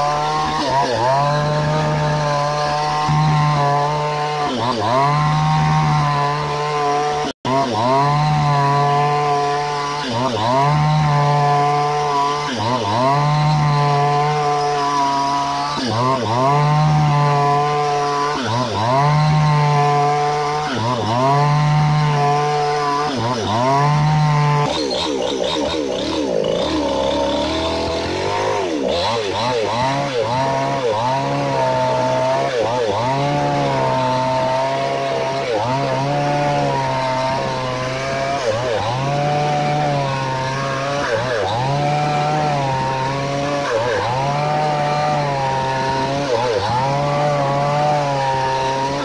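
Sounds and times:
chainsaw cutting through log: 0:00.0 - 0:49.0.

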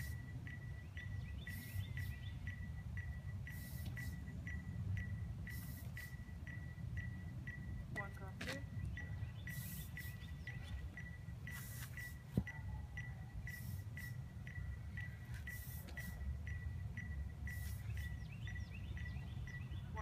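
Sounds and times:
small repeating chirp: 0:00.0 - 0:20.0
short hissy bursts: 0:03.5 - 0:04.2, 0:05.5 - 0:06.2, 0:09.5 - 0:10.3, 0:11.5 - 0:12.2, 0:13.5 - 0:14.2, 0:15.4 - 0:16.2, 0:17.5 - 0:18.2.

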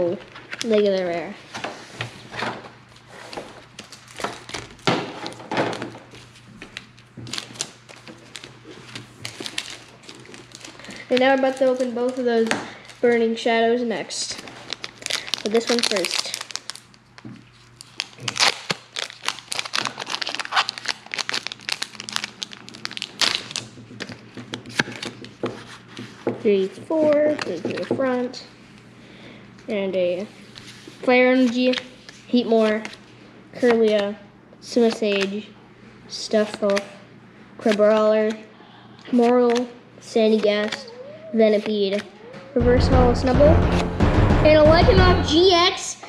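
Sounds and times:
foil wrapper crinkling: 0:03.7 - 0:13.1, 0:14.2 - 0:25.2.

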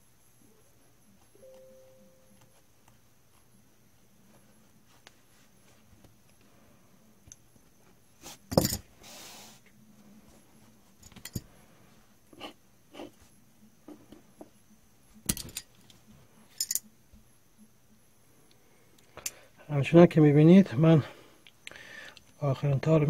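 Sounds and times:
metal tools clicking: 0:16.5 - 0:16.9.

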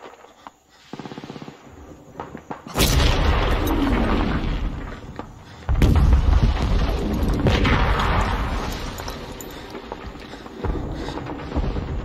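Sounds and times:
loud explosion: 0:05.7 - 0:08.7.

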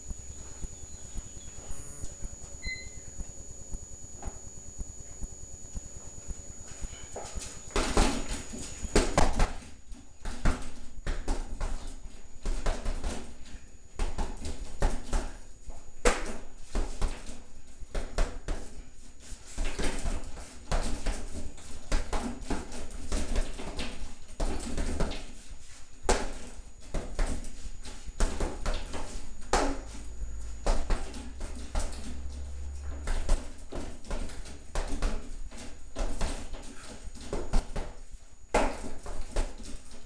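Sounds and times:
punches thudding on punching bag: 0:07.7 - 0:09.6.

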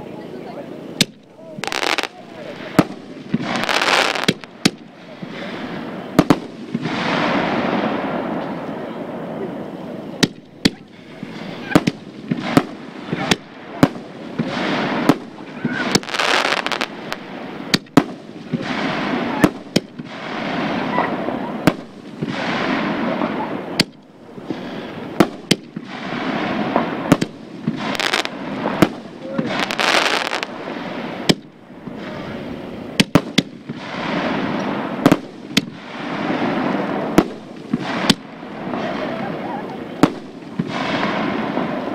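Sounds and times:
fireworks rushing noise: 0:00.0 - 0:41.9
fireworks bangs: 0:00.8 - 0:41.9.

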